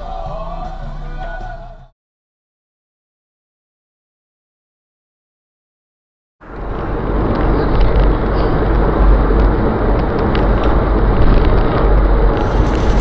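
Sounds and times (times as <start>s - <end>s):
car engine and tyre rumble: 6.4s - 13.0s.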